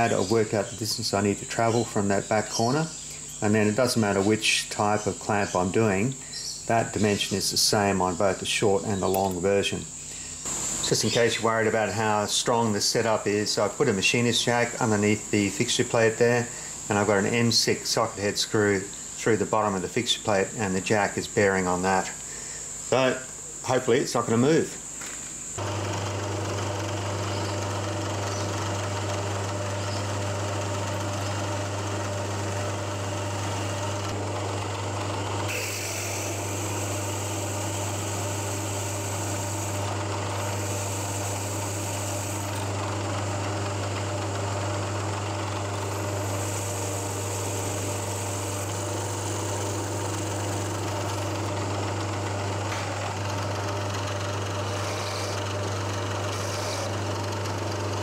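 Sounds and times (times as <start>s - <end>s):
milling machine motor hum: 10.4s - 12.3s, 25.5s - 58.0s
drill bit cutting metal: 25.6s - 58.0s.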